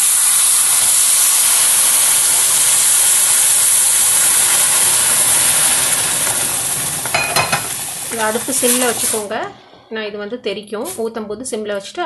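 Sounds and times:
water sizzling in hot pan: 0.0s - 9.4s.

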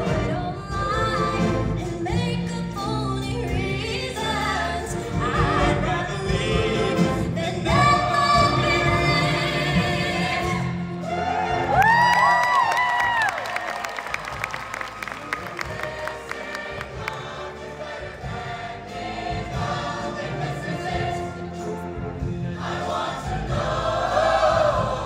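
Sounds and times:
choir singing: 3.5s - 11.8s, 15.0s - 25.0s.

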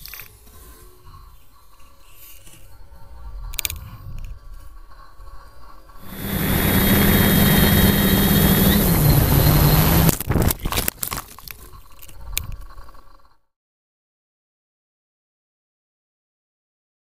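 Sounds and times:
rushing air: 6.0s - 10.2s
quadcopter motors whining: 6.0s - 10.3s
quadcopter crashing and tumbling: 6.0s - 11.0s.

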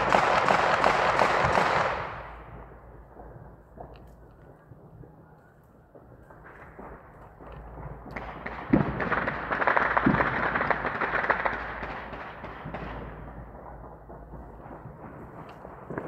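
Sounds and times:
fireworks crackling pops: 5.9s - 16.0s
deep firework booms: 6.3s - 16.0s.

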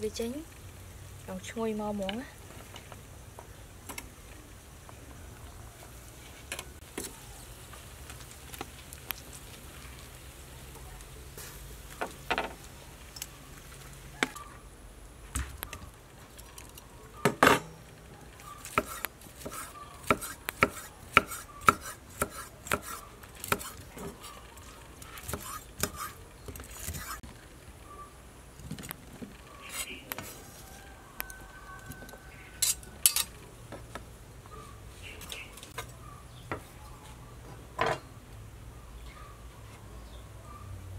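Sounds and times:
metal tongs clicking on grill rack: 32.6s - 33.4s.

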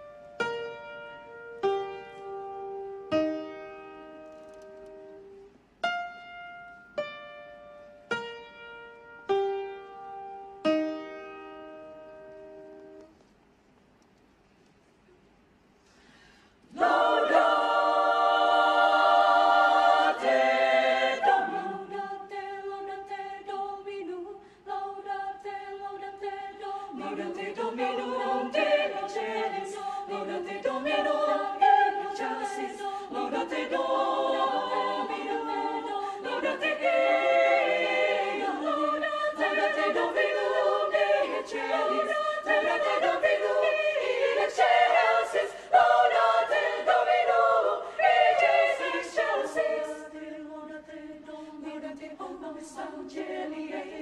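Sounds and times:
women's choir singing a cappella: 16.7s - 54.0s.

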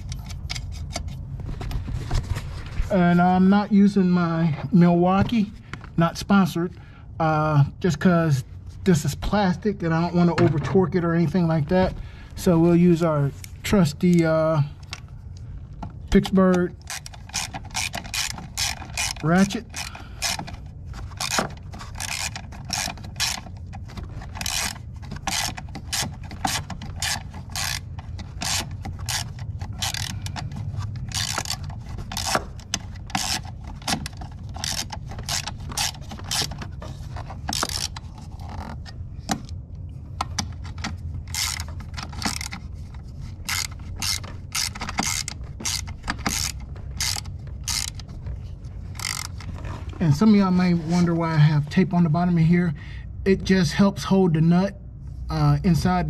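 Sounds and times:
hand ratchet clicking: 16.2s - 36.6s, 37.2s - 38.7s, 41.3s - 42.7s, 43.4s - 48.1s, 48.9s - 49.5s.

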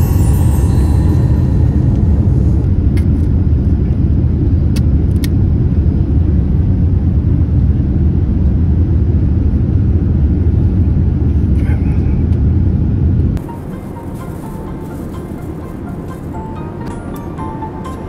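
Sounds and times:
airliner cabin rumble: 0.0s - 18.0s.

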